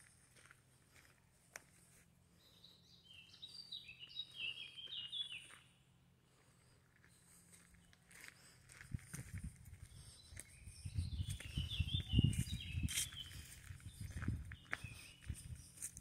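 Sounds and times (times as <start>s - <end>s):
songbird singing: 2.2s - 16.0s.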